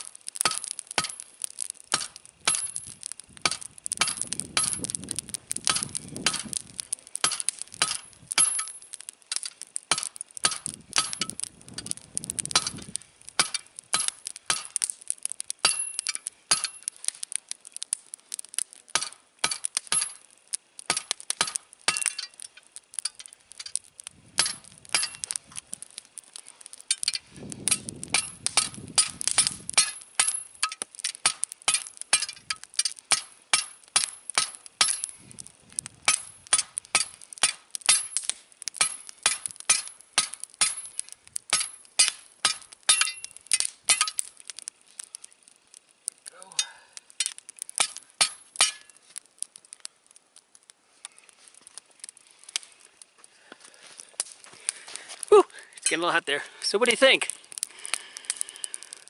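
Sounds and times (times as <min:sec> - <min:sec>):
hammer striking hot steel: 0:00.0 - 0:15.0, 0:15.6 - 0:17.2, 0:18.9 - 0:23.8, 0:24.4 - 0:25.6, 0:26.4 - 0:35.2, 0:36.0 - 0:44.4, 0:46.3 - 0:49.0.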